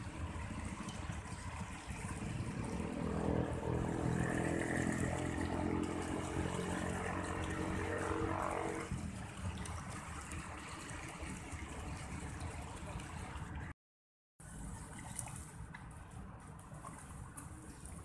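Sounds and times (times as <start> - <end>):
engine-like drone: 0.0 - 13.7.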